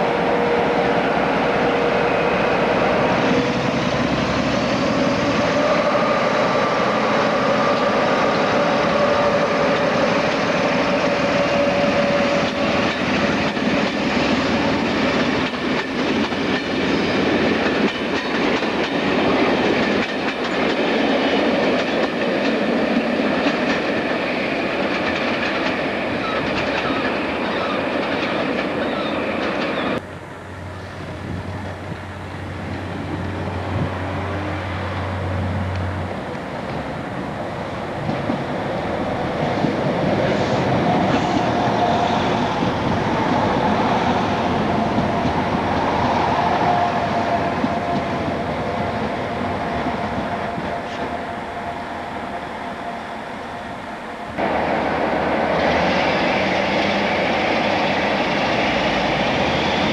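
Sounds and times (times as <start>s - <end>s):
diesel train engine whine: 0.0s - 59.9s
wheels clacking over rail joints: 2.7s - 30.0s.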